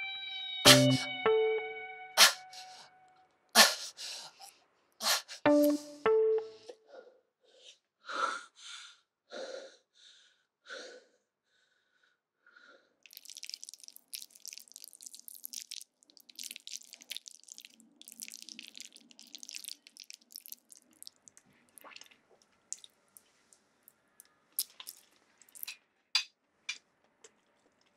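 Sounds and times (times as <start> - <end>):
wet squelching and slurping: 13.0 - 23.3, 24.6 - 25.7.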